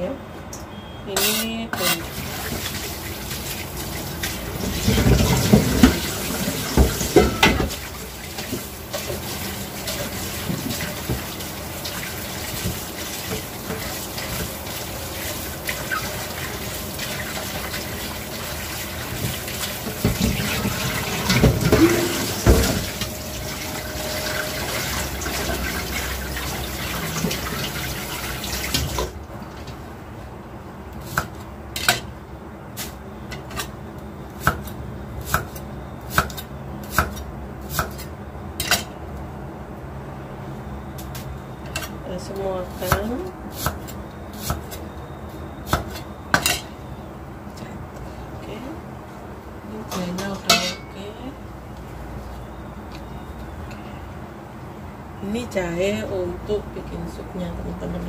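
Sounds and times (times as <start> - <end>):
tap water running into sink: 2.1 - 29.2.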